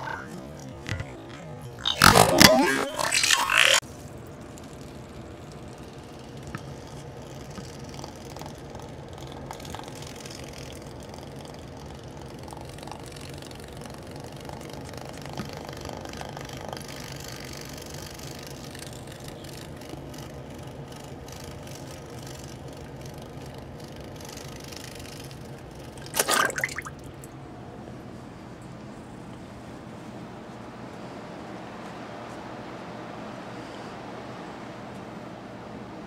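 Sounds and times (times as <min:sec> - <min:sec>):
small motor humming: 0:00.0 - 0:26.1.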